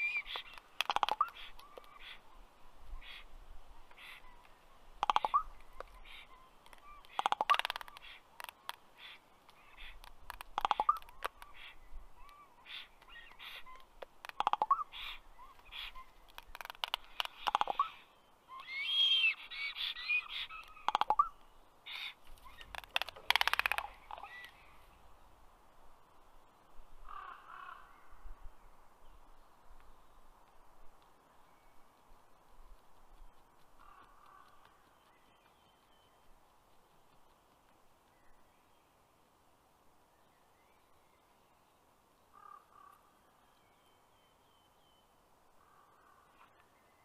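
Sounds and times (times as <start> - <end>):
raven clicking calls: 0.0 - 24.9, 27.0 - 28.2, 29.8 - 38.7, 42.3 - 43.2, 45.5 - 46.7
songbird chirps: 0.0 - 47.0
raven rough squeaky call: 18.6 - 21.3.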